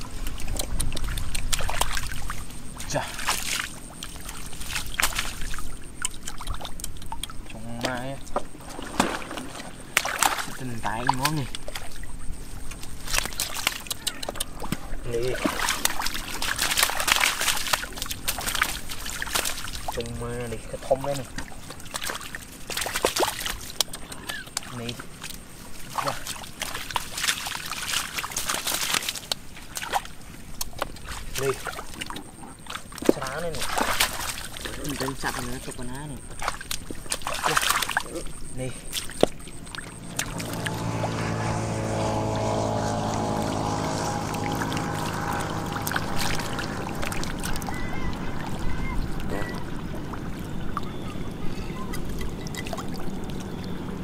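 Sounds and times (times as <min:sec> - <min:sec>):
drips and clicks: 0:00.0 - 0:08.6, 0:10.2 - 0:27.0, 0:28.0 - 0:40.8, 0:44.5 - 0:53.8
water sloshing and splashing: 0:00.0 - 0:54.0
steady low rumble: 0:38.8 - 0:54.0.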